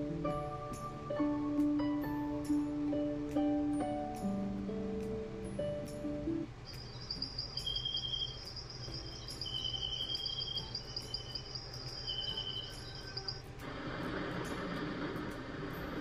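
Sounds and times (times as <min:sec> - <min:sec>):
crickets trilling: 0:06.6 - 0:13.6
lower cricket chirps: 0:06.6 - 0:13.6.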